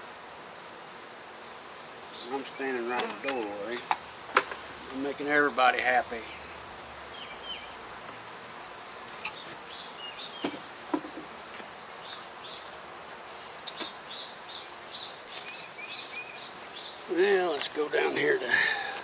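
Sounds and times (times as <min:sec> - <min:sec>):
high-pitched insect chorus: 0:00.0 - 0:19.0
light knocks: 0:10.4 - 0:11.7.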